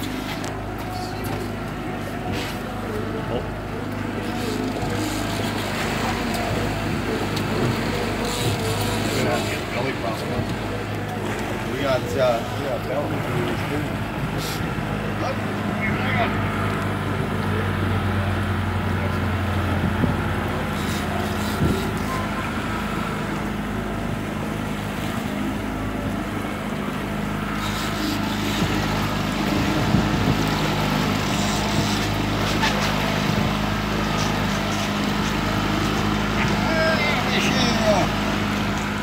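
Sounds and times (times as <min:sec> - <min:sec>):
outboard motor running: 0:00.0 - 0:39.0
water noise: 0:00.0 - 0:39.0
wind: 0:00.0 - 0:39.0.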